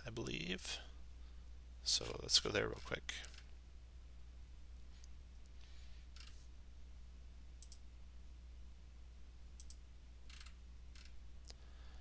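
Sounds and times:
faint low hum: 0:00.0 - 0:12.0
computer mouse clicking: 0:07.6 - 0:07.8, 0:09.6 - 0:11.1.

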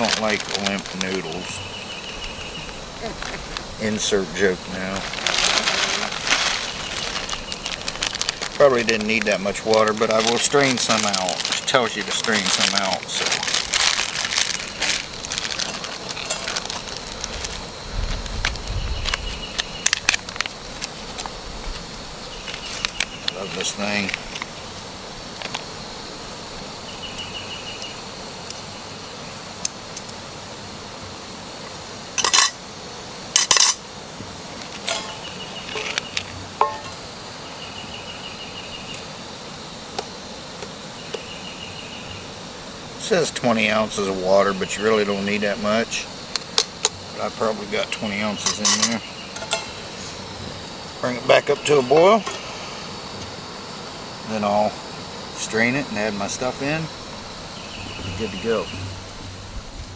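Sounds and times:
foil packet crinkling: 0:00.0 - 0:01.6, 0:04.8 - 0:21.4
pulsing insect buzz: 0:00.0 - 0:59.9
lid and pot clanking: 0:36.6 - 0:37.0, 0:48.4 - 0:49.8.

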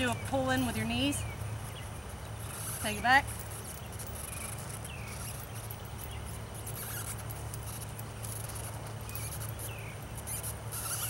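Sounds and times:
low steady hum: 0:00.0 - 0:11.0
insects chirring: 0:00.9 - 0:11.0.

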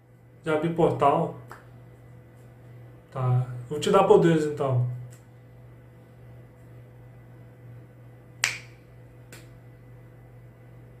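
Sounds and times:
steady low hum: 0:00.0 - 0:11.0
finger snap: 0:01.4 - 0:01.8, 0:05.0 - 0:05.3, 0:08.4 - 0:09.6.

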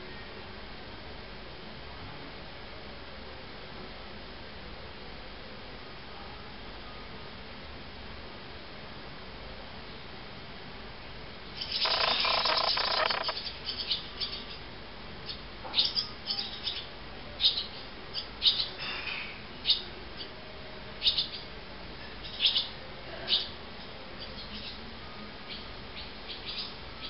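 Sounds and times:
high chirps and twitters: 0:11.6 - 0:13.5
nestlings begging chirps: 0:11.6 - 0:14.5.

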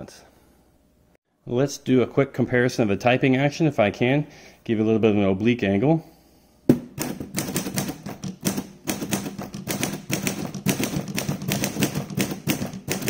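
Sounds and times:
manual typewriter typing: 0:07.0 - 0:13.0.

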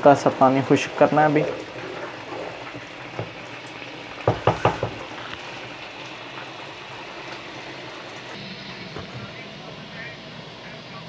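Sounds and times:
curry sizzling in a pot: 0:00.0 - 0:09.0
wooden spoon knocking pot: 0:04.2 - 0:05.1.

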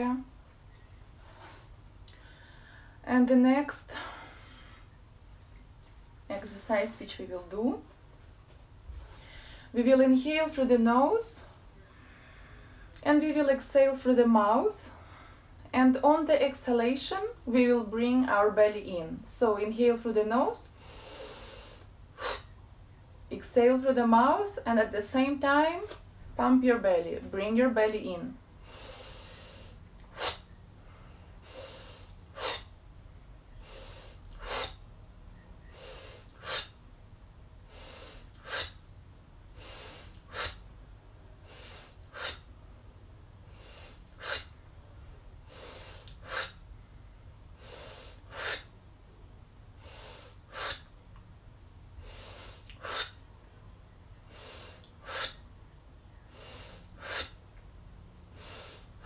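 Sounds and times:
quiet nose inhales: 0:28.6 - 0:32.7.

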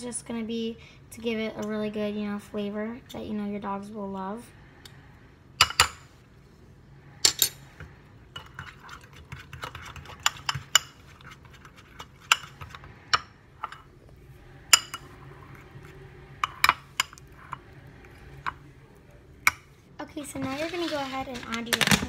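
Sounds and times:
batter scraping and squelching: 0:08.4 - 0:13.1, 0:20.2 - 0:22.0.

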